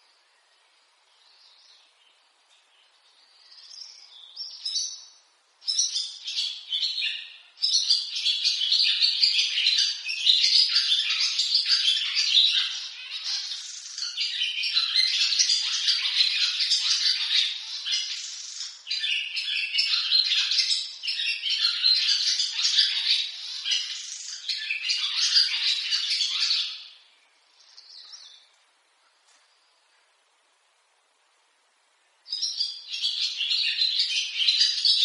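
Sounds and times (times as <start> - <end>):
swallows twittering: 2.6 - 28.5.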